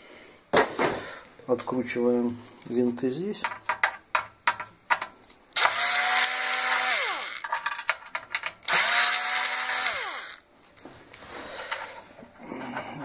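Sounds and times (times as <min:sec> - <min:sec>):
cordless drill motor whine: 0:05.6 - 0:07.4, 0:08.7 - 0:10.4.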